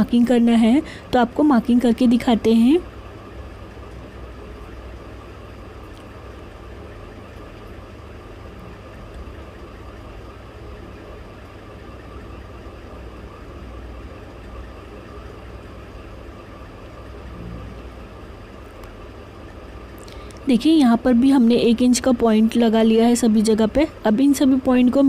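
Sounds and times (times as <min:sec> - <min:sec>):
low background hum: 0:00.0 - 0:25.0.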